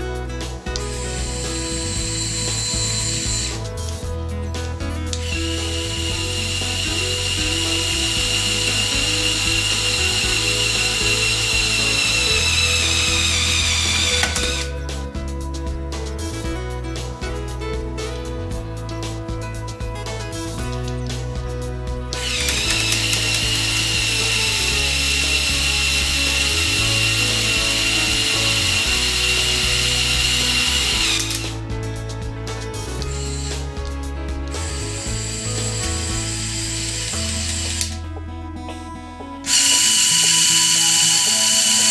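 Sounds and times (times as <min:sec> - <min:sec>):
background music: 0:00.0 - 0:41.9
toy electric motor whining: 0:05.2 - 0:14.7, 0:22.2 - 0:31.6, 0:39.5 - 0:41.9
small electric motor whine: 0:39.5 - 0:41.9.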